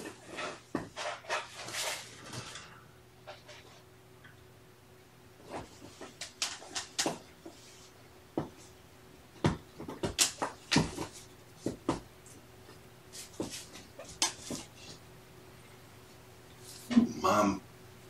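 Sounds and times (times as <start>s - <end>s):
cats scratching and rustling: 0.0s - 3.8s, 5.4s - 8.8s, 9.7s - 15.0s.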